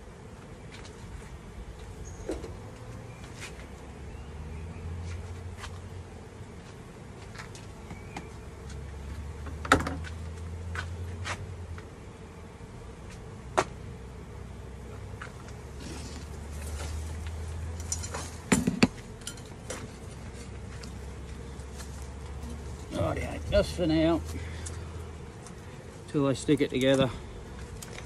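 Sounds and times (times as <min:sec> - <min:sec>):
honeybees buzzing: 0:00.0 - 0:28.0.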